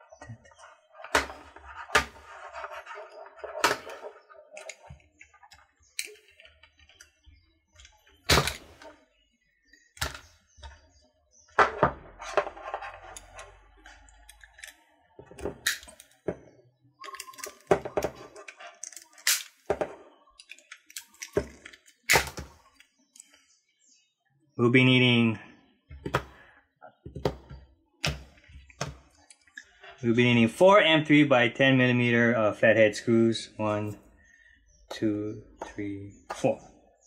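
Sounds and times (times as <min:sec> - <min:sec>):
plastic parts rustling and clattering: 0:17.0 - 0:23.4.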